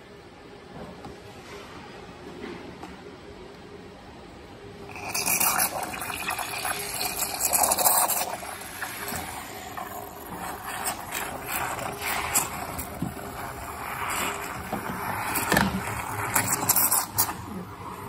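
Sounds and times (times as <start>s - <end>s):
steam wand frothing milk: 4.9s - 18.0s.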